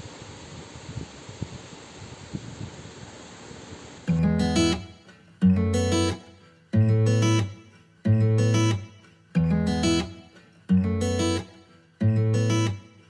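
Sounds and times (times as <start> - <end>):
strummed guitar chords: 4.1 - 13.0.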